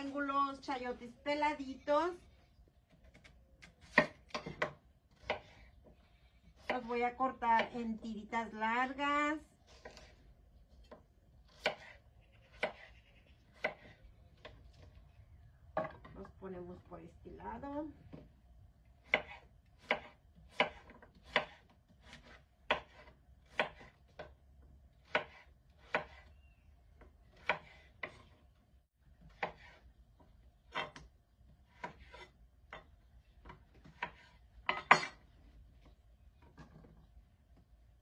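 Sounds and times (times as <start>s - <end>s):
knife chopping on wooden board: 3.2s - 5.7s, 10.9s - 12.9s, 13.6s - 14.6s, 19.0s - 24.4s, 25.0s - 26.3s, 27.3s - 28.4s, 29.2s - 29.8s, 30.7s - 31.1s, 31.7s - 32.9s, 33.7s - 35.2s.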